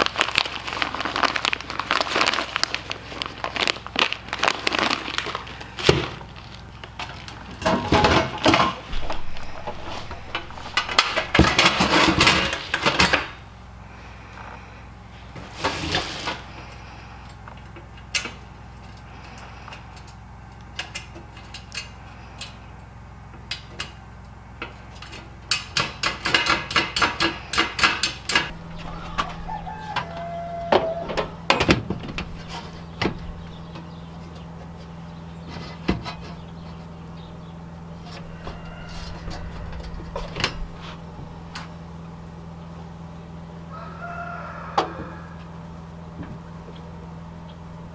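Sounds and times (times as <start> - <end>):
screws rattling in plastic bag: 0.0 - 6.5.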